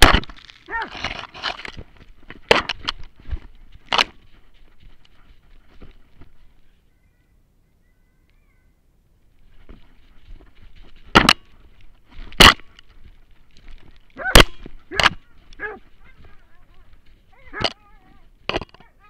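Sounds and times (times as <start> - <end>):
dog barking: 15.6 - 16.6.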